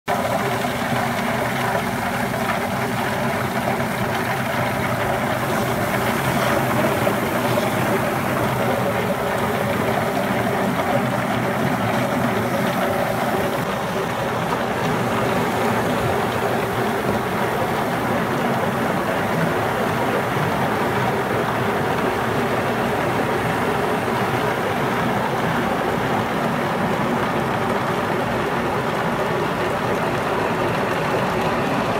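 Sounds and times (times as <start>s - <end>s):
machine humming: 0.1s - 26.0s
water spray: 1.6s - 13.6s.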